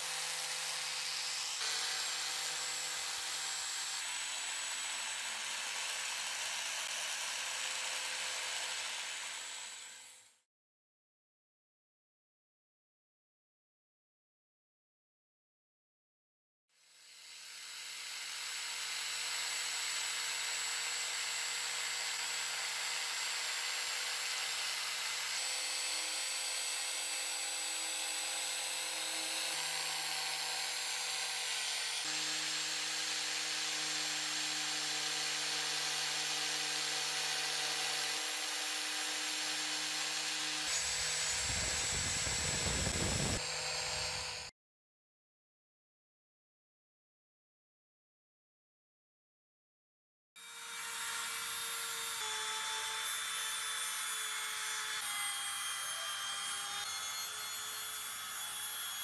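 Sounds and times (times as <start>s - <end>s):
grinder disc on metal: 28.9s - 44.5s.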